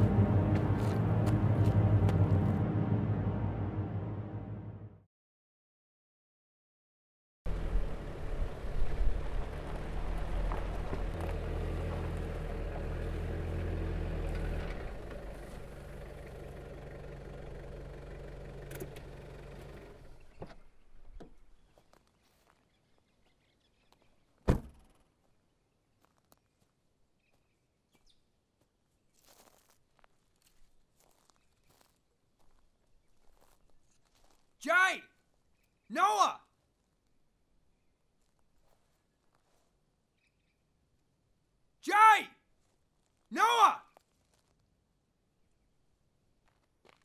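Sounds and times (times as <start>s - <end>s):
pickup truck engine running: 7.5s - 20.3s.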